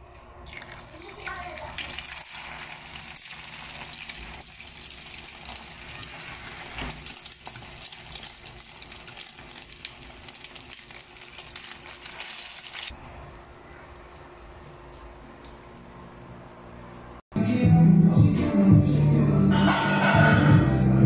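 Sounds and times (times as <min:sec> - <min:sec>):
food sizzling in hot oil: 0:00.5 - 0:13.0.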